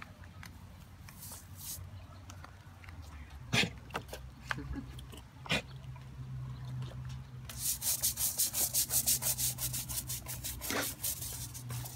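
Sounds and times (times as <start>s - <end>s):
plastic brush scraping tortoise shell: 1.1s - 1.9s, 7.5s - 11.9s.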